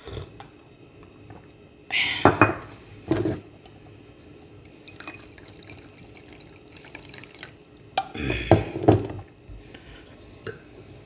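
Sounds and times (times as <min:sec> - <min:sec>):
liquid and handling noise: 0:02.9 - 0:07.9
tea sipping: 0:04.4 - 0:07.7.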